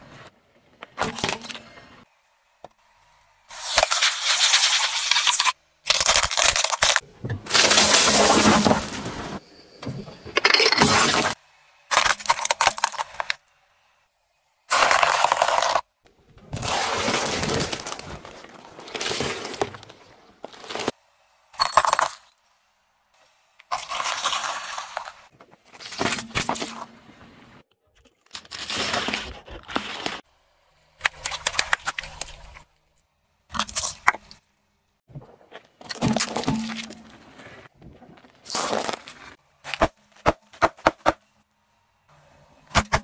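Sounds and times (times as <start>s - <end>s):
car tyre crushing brittle objects: 3.8s - 9.4s, 10.4s - 13.6s, 14.7s - 22.1s, 23.6s - 27.2s, 27.8s - 30.3s, 33.5s - 34.4s, 35.2s - 41.4s.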